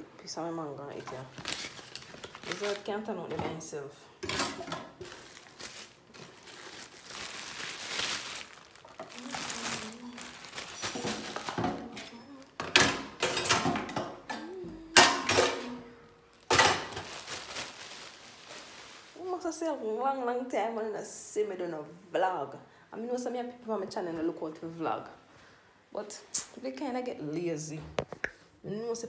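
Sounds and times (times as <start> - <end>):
plastic bag rustling: 0.9 - 3.2, 4.4 - 13.6, 15.4 - 19.6.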